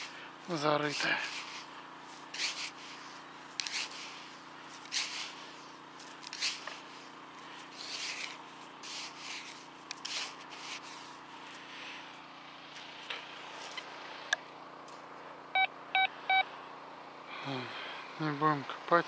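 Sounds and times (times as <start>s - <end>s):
hand scraping sand: 0.0s - 12.1s.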